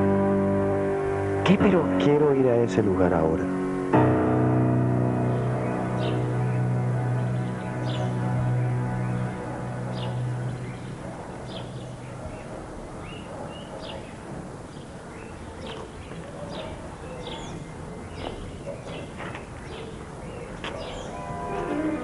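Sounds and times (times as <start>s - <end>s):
low music: 0.0s - 12.7s, 21.0s - 22.0s
piano music: 0.0s - 13.4s, 20.7s - 22.0s
small birds chirping: 5.2s - 22.0s.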